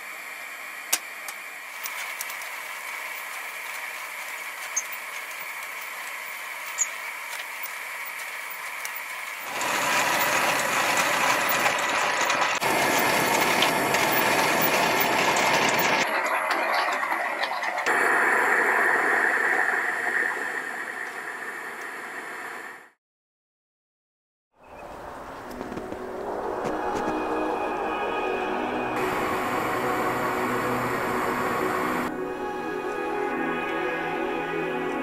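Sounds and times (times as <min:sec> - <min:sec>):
hand coffee mill grinding beans: 0:01.7 - 0:17.8.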